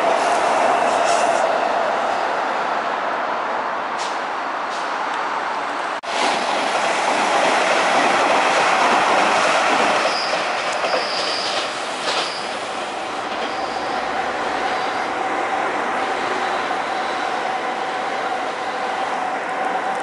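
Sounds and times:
train wheels rumbling on rails: 0:00.0 - 0:02.6, 0:06.0 - 0:20.0
high wheel squeal: 0:10.1 - 0:12.6, 0:13.4 - 0:15.2.

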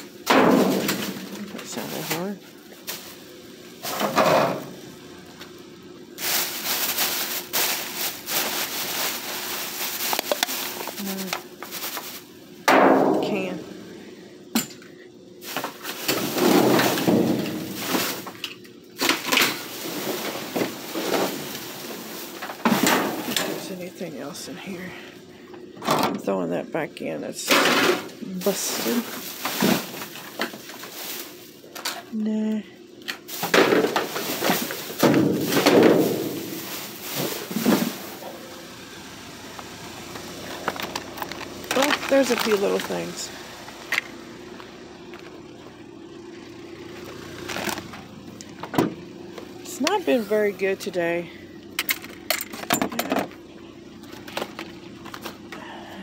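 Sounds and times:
faint shuffling and handling: 0:06.1 - 0:12.5, 0:28.2 - 0:32.2, 0:33.2 - 0:38.5, 0:39.5 - 0:45.4
plastic bags crinkling: 0:06.1 - 0:12.5, 0:15.4 - 0:23.8, 0:28.3 - 0:32.0, 0:33.2 - 0:38.5, 0:40.0 - 0:43.9, 0:47.2 - 0:48.0.

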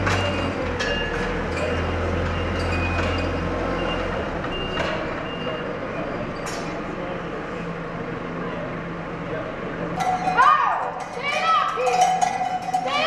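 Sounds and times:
forklift engine humming: 0:00.0 - 0:11.3
reversing beeper beeps: 0:00.2 - 0:05.8.

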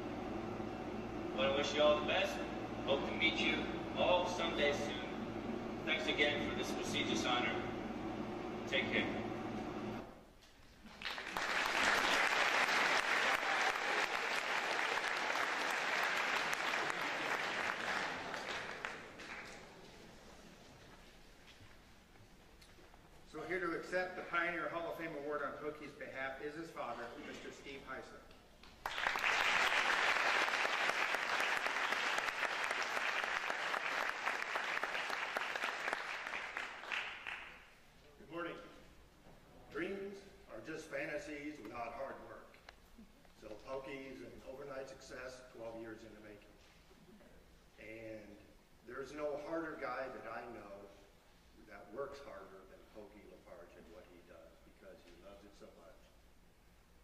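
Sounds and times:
audience applauding: 0:10.9 - 0:19.9, 0:28.6 - 0:37.7.

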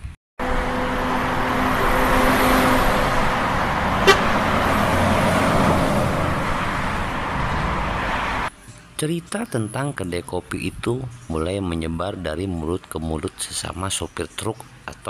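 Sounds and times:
highway traffic road noise: 0:00.4 - 0:09.0
vehicle horn: 0:03.9 - 0:05.0.

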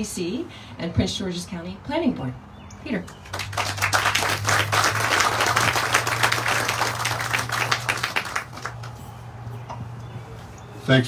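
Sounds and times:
audience applauding: 0:03.2 - 0:09.0.

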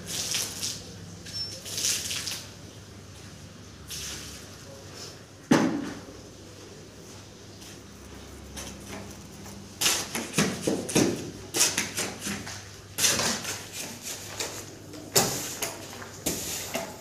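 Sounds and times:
shovel scraping concrete floor: 0:08.5 - 0:17.0.

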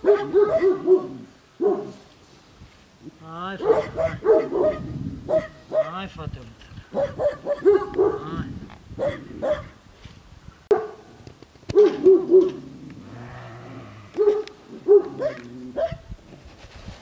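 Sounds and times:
large dogs barking: 0:00.0 - 0:02.1, 0:03.6 - 0:06.0, 0:06.9 - 0:08.4, 0:09.0 - 0:09.8, 0:10.7 - 0:11.1, 0:11.7 - 0:12.8, 0:14.1 - 0:16.1.

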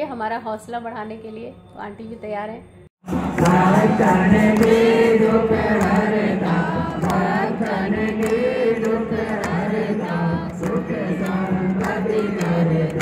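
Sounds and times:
group of voices chanting: 0:03.1 - 0:13.0
sharp rhythmic taps: 0:03.1 - 0:13.0.

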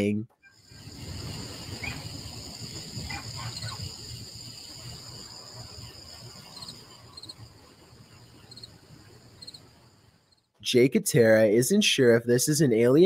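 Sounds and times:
insects trilling: 0:00.4 - 0:10.5
insect chirps: 0:00.4 - 0:10.6.

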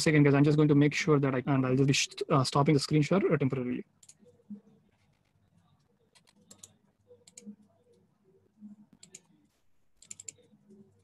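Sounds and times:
keyboard typing: 0:06.1 - 0:08.0, 0:09.0 - 0:09.3, 0:10.0 - 0:11.0.

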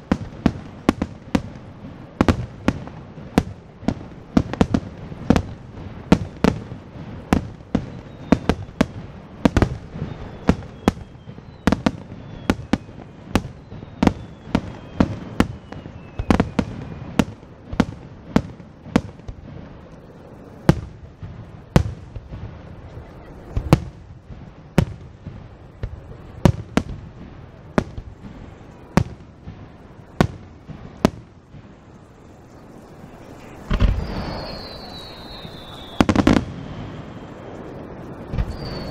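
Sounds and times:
firework whistle falling in pitch: 0:09.7 - 0:17.2, 0:33.4 - 0:37.6, 0:38.2 - 0:38.9
firework shells bursting: 0:23.5 - 0:38.9.

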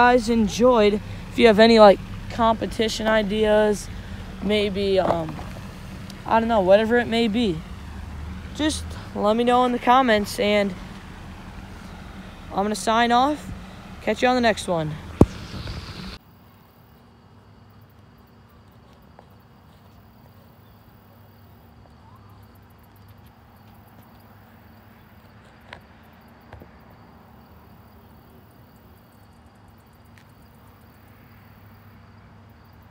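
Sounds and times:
steady low hum: 0:00.0 - 0:16.2.

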